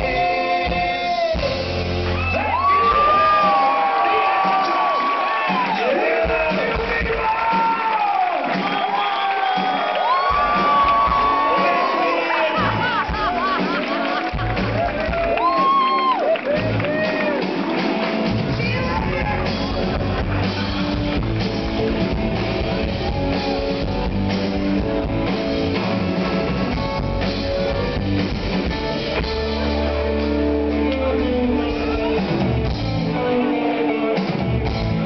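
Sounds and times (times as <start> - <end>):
drum kit: 0.0 - 35.0
keyboards: 0.0 - 35.0
electric guitar: 10.3 - 35.0
heavy held bass: 18.3 - 33.4.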